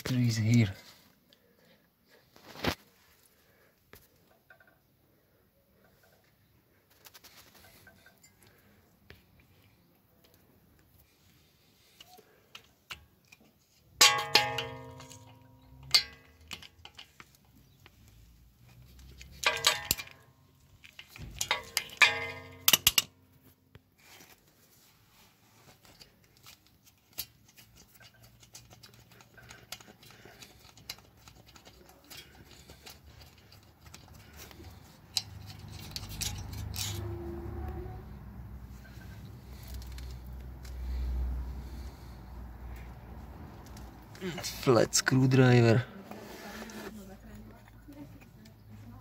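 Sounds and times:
metal tools clanking: 14.0s - 17.4s, 19.2s - 23.2s, 27.8s - 37.2s.

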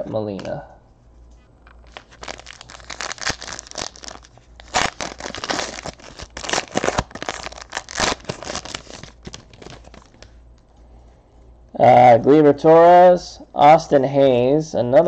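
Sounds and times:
foil wrappers crinkling and tearing: 1.7s - 10.4s.

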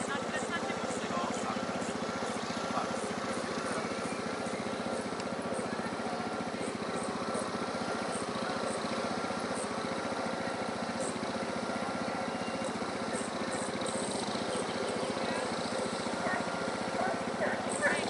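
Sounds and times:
small petrol engine running: 0.0s - 18.0s.

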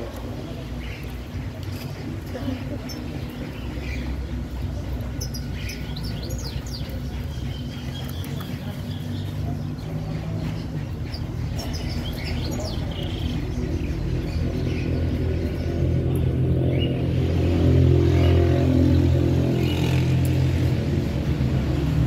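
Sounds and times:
quails chirping: 0.8s - 15.7s.

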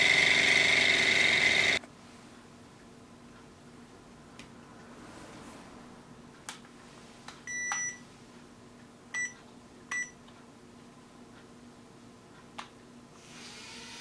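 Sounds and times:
remote controller beeps: 7.5s - 8.0s.

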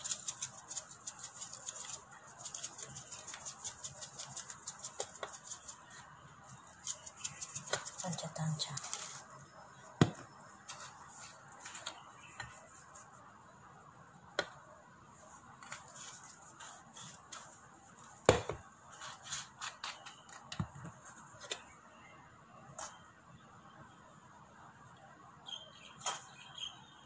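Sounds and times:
seasoning shakers clicking: 0.0s - 5.8s.

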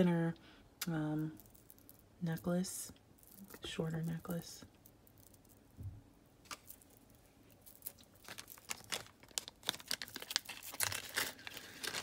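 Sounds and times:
stone beads clicking: 1.2s - 5.8s, 6.5s - 10.8s
plastic bag crinkling: 6.5s - 12.0s.

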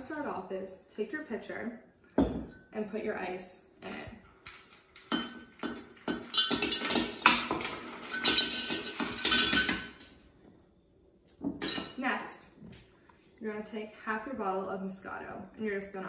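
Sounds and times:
ice cubes clinking against glass: 4.5s - 10.0s.

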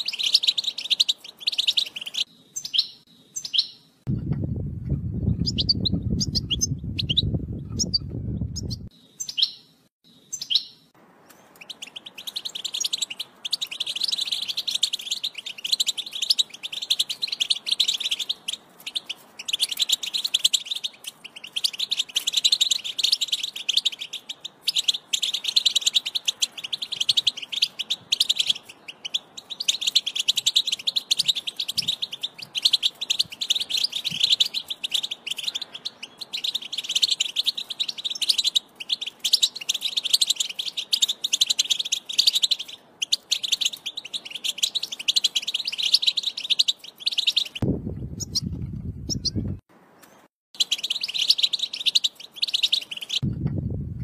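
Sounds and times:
goldfinch twittering song: 0.0s - 3.8s, 5.2s - 9.7s, 10.3s - 47.6s, 48.2s - 53.3s
bird chirps: 0.0s - 4.0s, 5.0s - 53.3s
low rumble: 4.1s - 8.9s, 47.6s - 49.6s, 53.2s - 54.0s.

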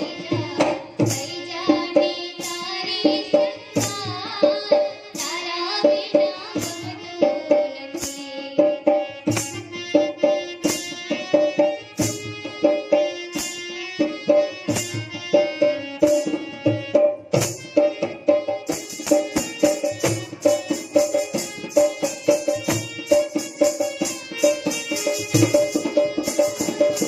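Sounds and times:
harmonium melody: 0.0s - 27.0s
hand drum beat: 14.3s - 27.0s.

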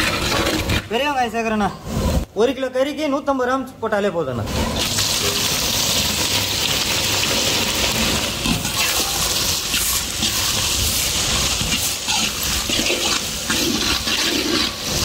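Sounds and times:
onions sizzling in hot oil: 4.8s - 15.0s.

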